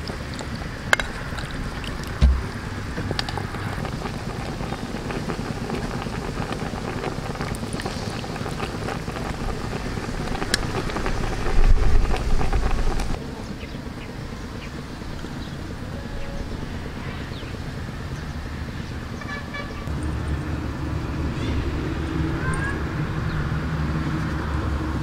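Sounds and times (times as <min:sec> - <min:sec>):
outdoor hiss: 0:00.0 - 0:13.2
wind buffeting microphone: 0:00.0 - 0:13.2.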